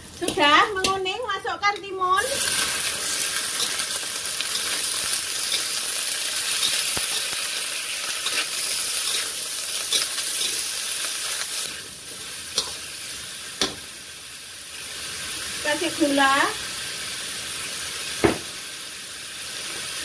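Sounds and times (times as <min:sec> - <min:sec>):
vegetables sizzling in oil: 0:00.0 - 0:20.0
sharp tap on pan: 0:13.6 - 0:13.8, 0:18.2 - 0:18.5.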